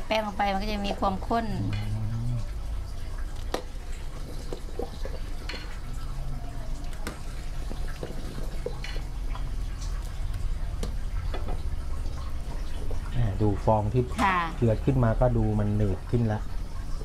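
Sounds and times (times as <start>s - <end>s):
ladle stirring thick sauce: 1.2s - 17.0s.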